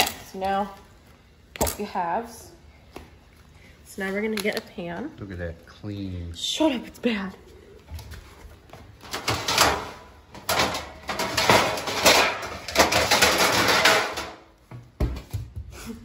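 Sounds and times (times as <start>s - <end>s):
metal baking pans scraping: 9.0s - 14.4s.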